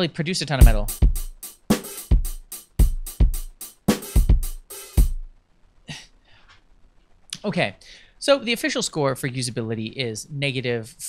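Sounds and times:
rock drum beat: 0.6s - 5.4s.

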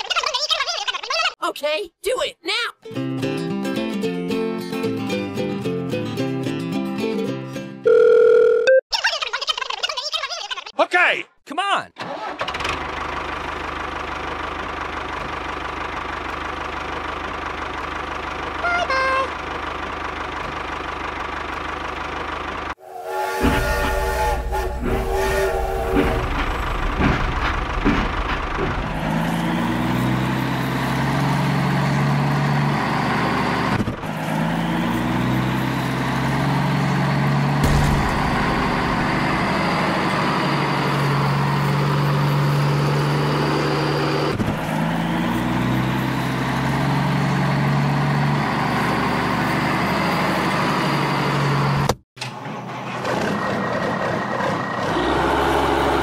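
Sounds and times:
vehicle engine sound effect: 13.0s - 56.0s
toy train horn: 18.6s - 19.3s, 22.8s - 26.6s, 54.9s - 56.0s.

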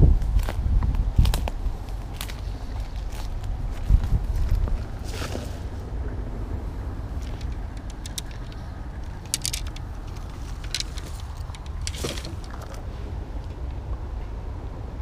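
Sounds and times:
wind rumbling on microphone: 0.0s - 15.0s
fishing rods and reels rattling: 6.9s - 13.8s.

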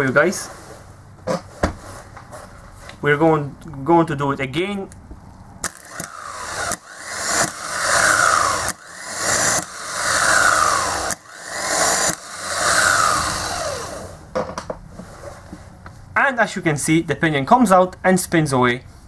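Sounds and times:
starter motor whirring: 5.6s - 14.3s.

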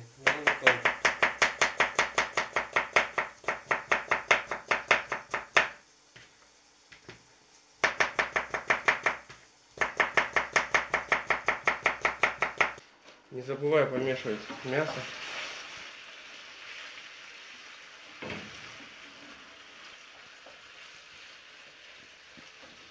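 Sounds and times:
knife chopping on plastic board: 0.3s - 5.8s, 9.8s - 12.8s.

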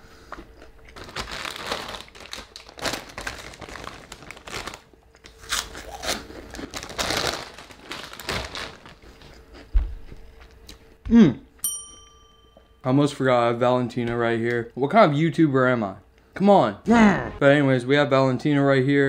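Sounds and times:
plastic chip bag crinkling: 0.6s - 9.7s.

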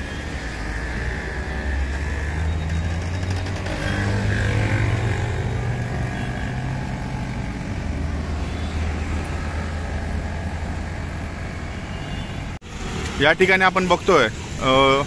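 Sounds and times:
loud vehicle passing: 0.0s - 11.9s
road traffic rumble: 0.0s - 15.0s.

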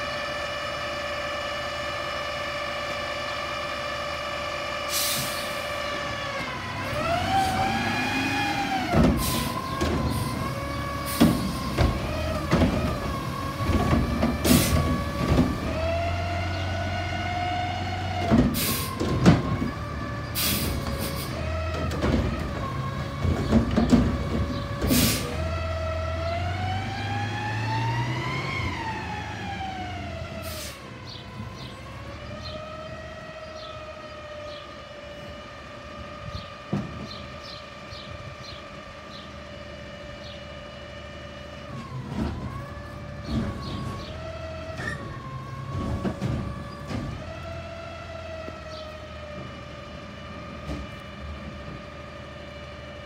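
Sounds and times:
garbage truck engine whine: 0.0s - 53.0s
clunks: 41.8s - 47.6s.

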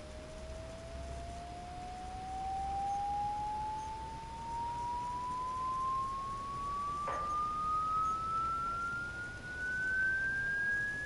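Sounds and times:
rising sine tone sweep: 0.0s - 11.0s.

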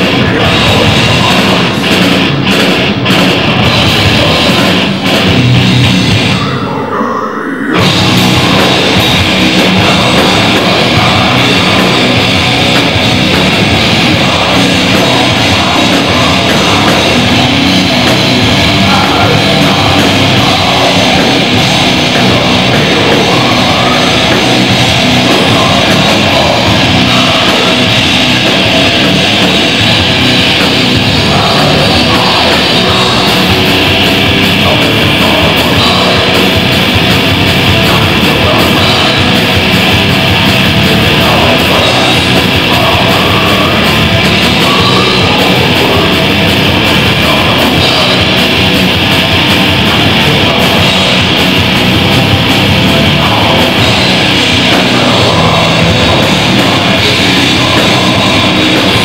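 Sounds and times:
harsh shouted vocals: 0.0s - 59.0s
heavy metal band playing: 0.0s - 59.0s.

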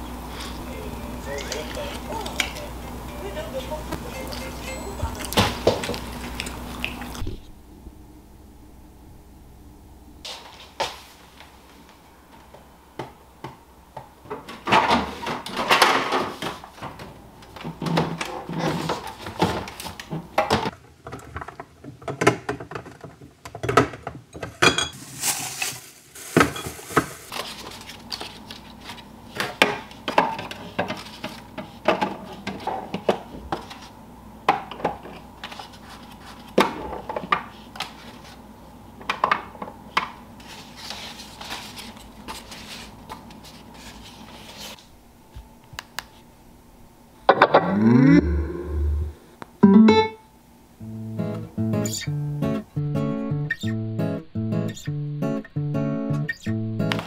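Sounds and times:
items clinking on plastic shelves: 14.2s - 33.9s, 34.5s - 38.4s.

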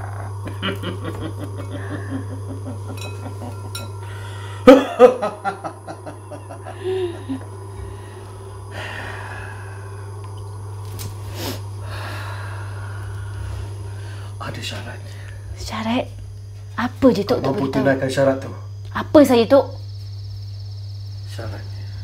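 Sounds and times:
steady low hum: 0.0s - 22.0s
burst of laughter: 0.5s - 3.8s, 4.6s - 7.4s.

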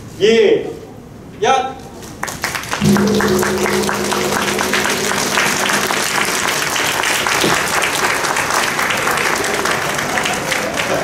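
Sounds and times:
audience applauding: 2.2s - 11.0s
gong ringing: 2.8s - 9.4s.

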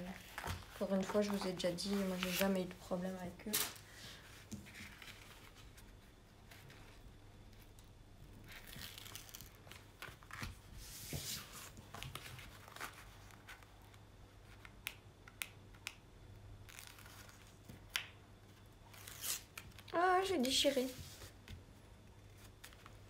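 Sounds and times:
packaging crinkling and tearing: 8.4s - 10.4s, 16.6s - 17.9s, 18.8s - 19.9s.

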